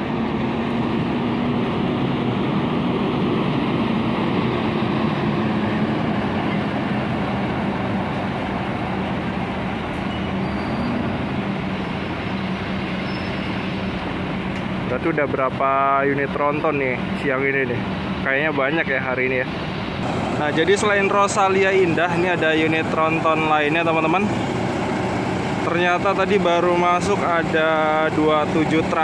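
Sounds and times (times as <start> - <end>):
diesel coach engine droning: 0.0 - 29.0.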